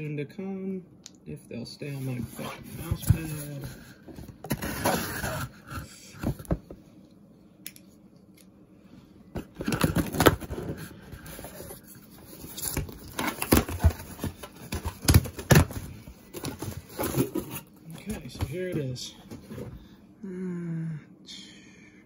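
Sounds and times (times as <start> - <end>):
cardboard box rustling: 2.0 - 5.6, 9.4 - 19.8.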